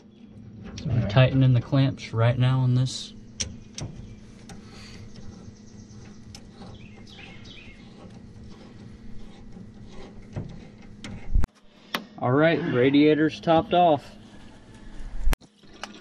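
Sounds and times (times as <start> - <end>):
birds chirping: 0.0 - 11.3.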